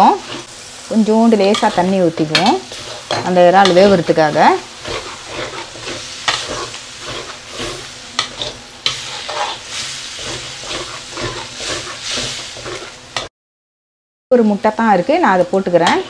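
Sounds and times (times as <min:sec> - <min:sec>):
metal spatula scraping wok: 0:00.0 - 0:00.6, 0:01.2 - 0:13.3, 0:15.7 - 0:16.0
sauce sizzling in pan: 0:00.0 - 0:13.3.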